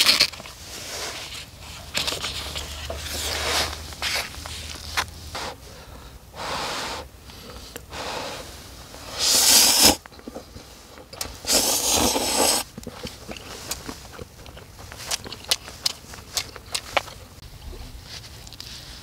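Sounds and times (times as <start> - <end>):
person blowing on noodles: 6.3 - 7.1, 7.9 - 10.0, 11.4 - 12.7
person slurping noodles: 7.9 - 10.6, 11.2 - 17.1.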